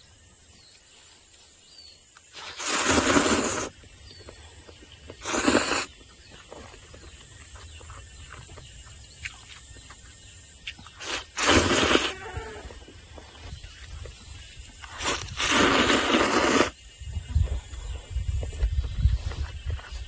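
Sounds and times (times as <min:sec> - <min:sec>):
quiet chewing: 0:02.1 - 0:16.0
person slurping noodles: 0:02.3 - 0:03.8, 0:05.2 - 0:06.0, 0:11.0 - 0:12.3, 0:14.8 - 0:16.8.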